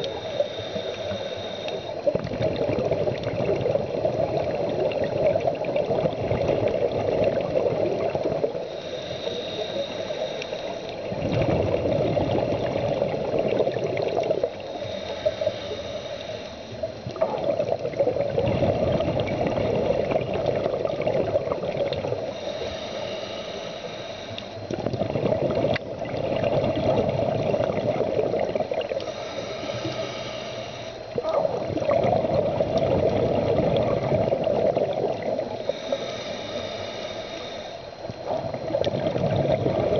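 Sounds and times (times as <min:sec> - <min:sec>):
regulator hissing inhale: 0:00.0 - 0:02.3, 0:07.9 - 0:11.2, 0:12.3 - 0:17.1, 0:21.3 - 0:25.2, 0:28.0 - 0:31.3, 0:35.1 - 0:39.9
bubbling exhaust: 0:00.0 - 0:39.9.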